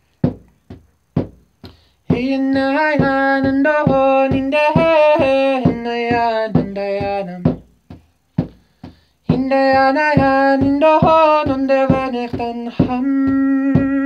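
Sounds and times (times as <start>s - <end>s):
frame drum beats: 0.2s - 14.0s
man singing held notes: 2.0s - 7.8s, 9.2s - 14.0s.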